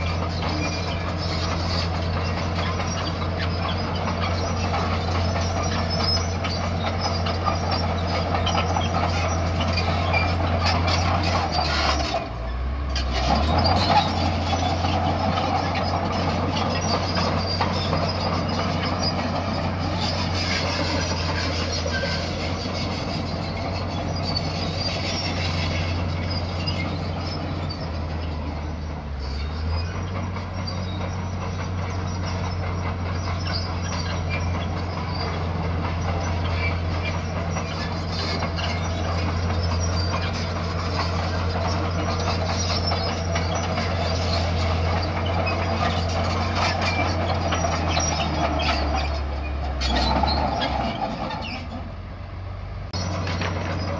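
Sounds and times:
steel tracks clanking and squealing: 0.0 - 52.3, 52.9 - 53.9
bulldozer diesel engine drone: 0.0 - 53.9.

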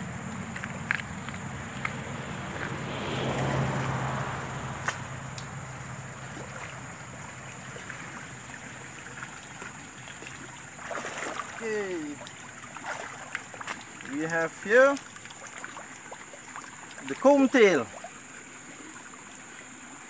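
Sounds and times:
water sloshing from dip net: 0.0 - 20.0
sharp tick: 4.8 - 5.5.

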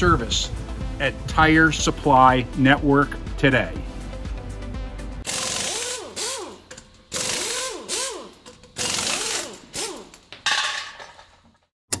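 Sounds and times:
power tool bursts: 5.2 - 10.3.

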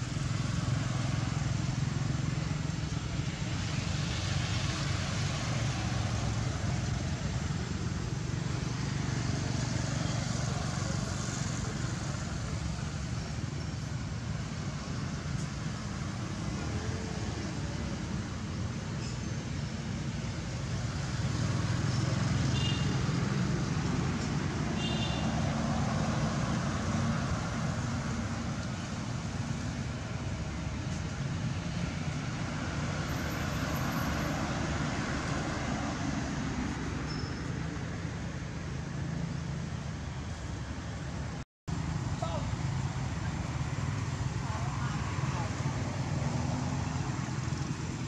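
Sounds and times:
outdoor rumble and hiss: 0.0 - 37.1, 37.7 - 48.0
faint short high chirps: 37.1 - 37.5.

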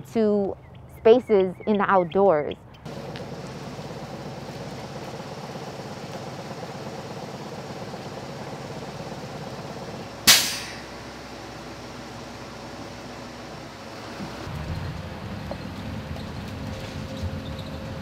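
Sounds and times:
bus engine idling: 2.9 - 18.0
air brake hiss: 10.3 - 10.9.

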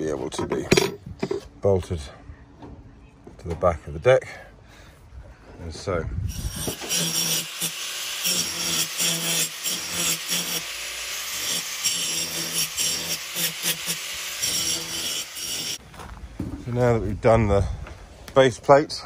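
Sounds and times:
angle grinder grinding steel: 6.3 - 15.8.

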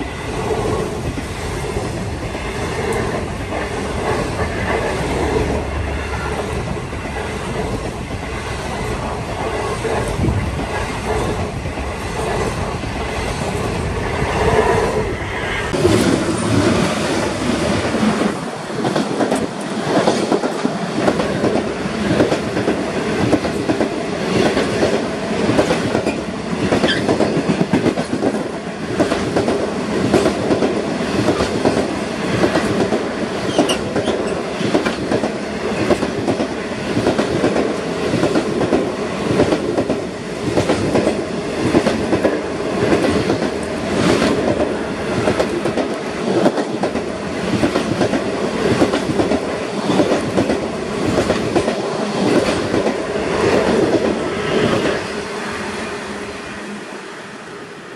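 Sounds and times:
train wheels rumbling on rail: 0.0 - 57.9.

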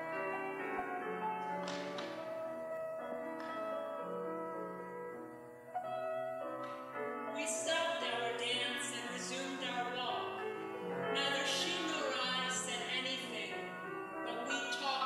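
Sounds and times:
piano accompaniment: 0.0 - 15.0
soprano singing: 7.2 - 15.0.

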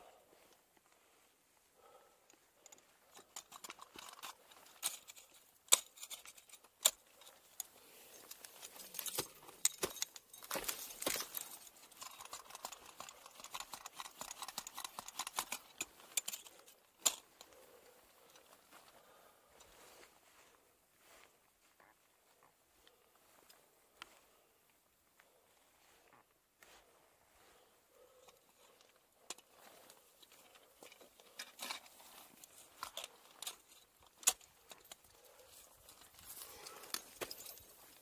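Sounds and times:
climbing hardware jangling: 2.6 - 18.6, 28.0 - 38.0.

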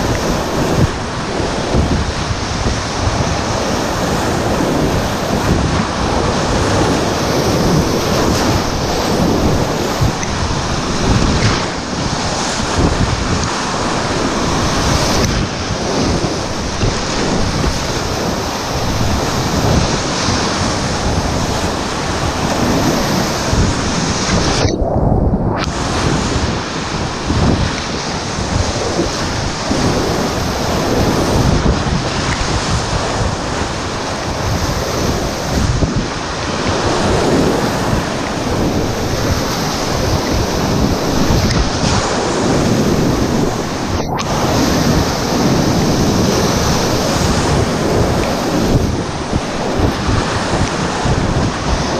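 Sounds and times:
river rushing and splashing: 0.0 - 24.9, 25.6 - 51.9
wind buffeting microphone: 0.0 - 51.9.

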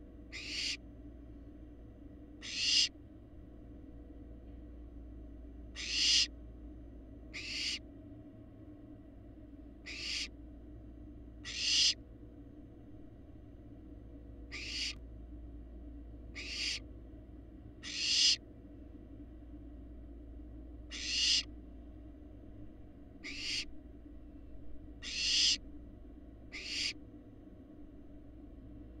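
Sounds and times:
steady low hum: 0.0 - 29.0
owl fledglings rasping hiss calls: 0.3 - 0.8, 2.4 - 3.0, 5.7 - 6.3, 7.3 - 7.8, 9.8 - 10.4, 11.4 - 12.0, 14.5 - 15.0, 16.3 - 16.9, 17.8 - 18.4, 20.9 - 21.5, 23.2 - 23.7, 25.0 - 25.6, 26.5 - 27.0.

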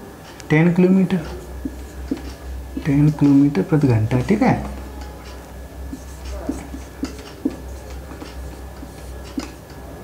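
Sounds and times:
steady low hum: 0.0 - 10.0
marker tapping on whiteboard: 1.6 - 2.4, 5.9 - 9.6.

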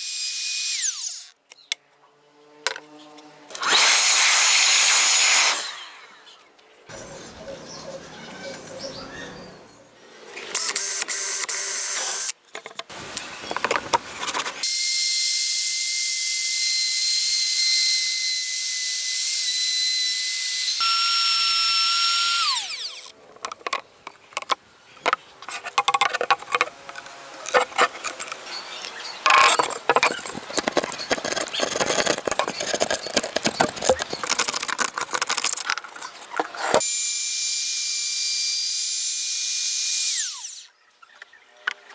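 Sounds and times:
router bit cutting wood: 0.0 - 1.4, 2.6 - 6.0, 14.6 - 23.2, 25.7 - 28.4, 29.3 - 40.7
router motor whining: 0.0 - 1.4, 2.2 - 6.0, 14.6 - 23.7, 25.8 - 28.5, 29.2 - 40.7.

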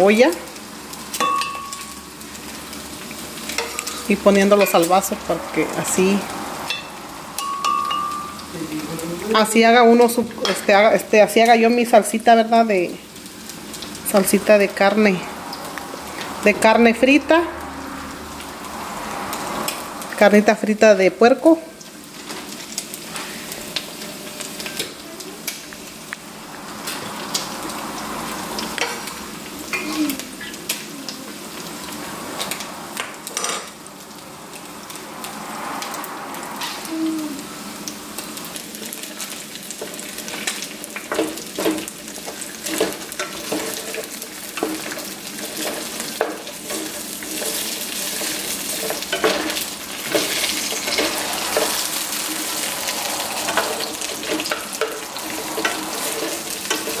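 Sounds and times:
pork sizzling in fat: 0.0 - 57.0.

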